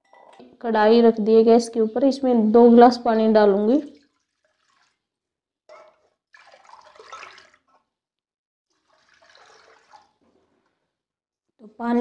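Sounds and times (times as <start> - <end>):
water pouring into metal pan: 3.8 - 7.8, 8.7 - 10.4.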